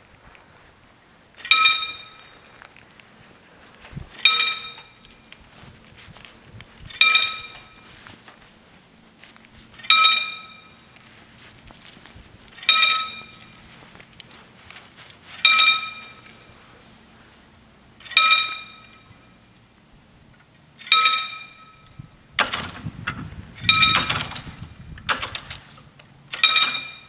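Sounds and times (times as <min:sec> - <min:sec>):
level-crossing warning bell: 0:01.4 - 0:02.6, 0:04.1 - 0:06.1, 0:06.9 - 0:08.2, 0:09.7 - 0:11.4, 0:12.5 - 0:16.9, 0:18.0 - 0:19.6, 0:20.8 - 0:22.0, 0:23.6 - 0:24.3, 0:26.3 - 0:27.0.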